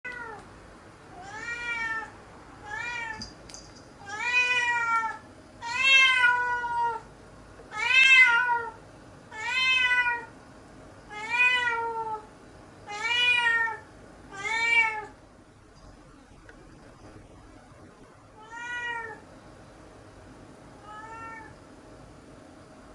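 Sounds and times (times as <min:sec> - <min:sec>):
cat meowing: 0:01.2 - 0:03.2, 0:04.0 - 0:07.0, 0:07.7 - 0:10.3, 0:11.1 - 0:12.3, 0:12.9 - 0:15.1, 0:18.4 - 0:19.2, 0:20.8 - 0:21.6.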